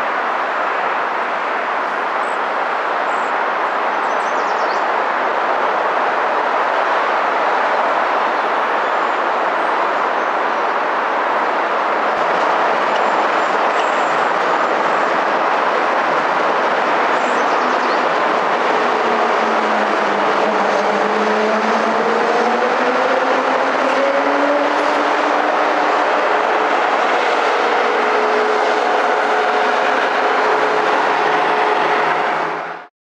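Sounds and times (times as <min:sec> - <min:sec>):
road traffic: 0:00.0 - 0:32.9
train running past: 0:00.0 - 0:32.9
engine tones rising in pitch: 0:17.6 - 0:32.9.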